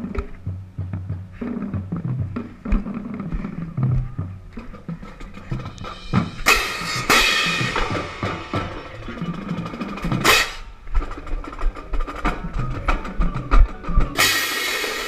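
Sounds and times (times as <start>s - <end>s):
marching drumline playing: 0.0s - 15.0s
crash cymbals: 5.8s - 9.0s.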